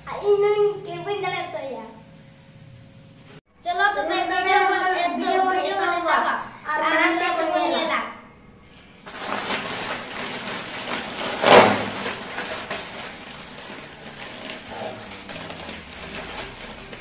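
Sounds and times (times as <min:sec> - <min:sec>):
plastic snack packets crinkling: 0:09.1 - 0:17.0.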